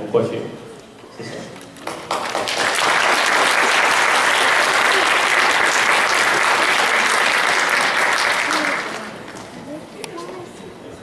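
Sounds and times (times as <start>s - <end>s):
audience applauding: 1.8s - 9.6s.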